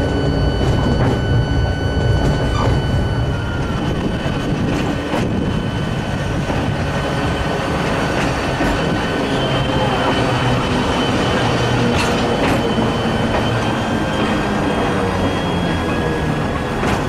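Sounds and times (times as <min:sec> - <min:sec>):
high steady whine: 0:00.0 - 0:17.0
train rumbling on track: 0:00.0 - 0:17.0
wheels clacking over rail joints: 0:04.3 - 0:17.0.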